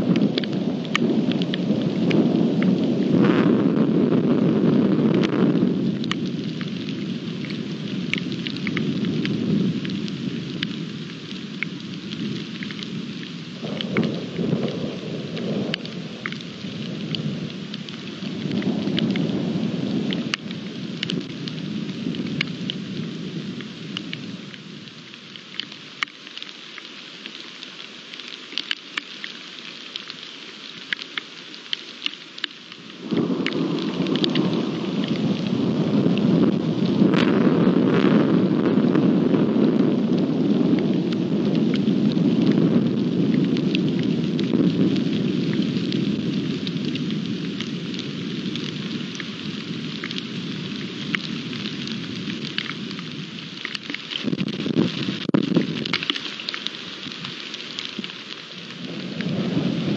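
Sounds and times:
rolling thunder: 0:00.0 - 0:10.6, 0:13.0 - 0:23.6, 0:33.0 - 0:53.3, 0:58.8 - 0:59.9
rain falling: 0:00.0 - 0:59.9.

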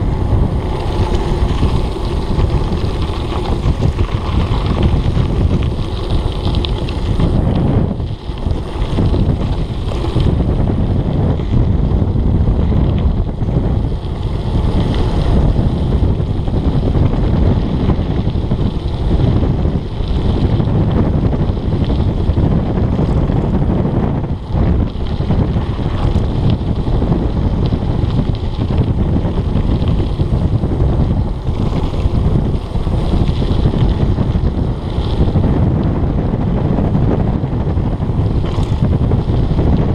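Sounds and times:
bike tyre and frame noise: 0:00.0 - 0:39.9
wind buffeting microphone: 0:00.0 - 0:39.9.

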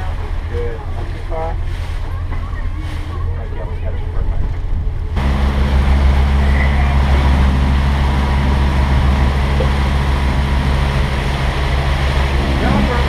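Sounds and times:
boat engine humming: 0:00.0 - 0:13.0
water rushing past: 0:04.4 - 0:13.0.

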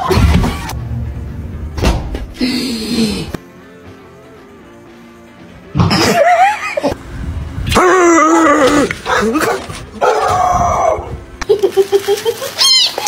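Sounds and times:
dog barking in long calls: 0:09.0 - 0:10.4.

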